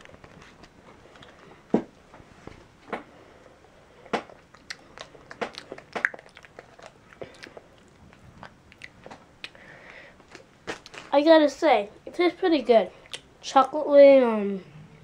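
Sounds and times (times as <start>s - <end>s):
person chewing candy: 3.9s - 11.2s, 13.0s - 13.3s
mouth clicks and smacks: 4.1s - 9.6s, 13.0s - 13.3s.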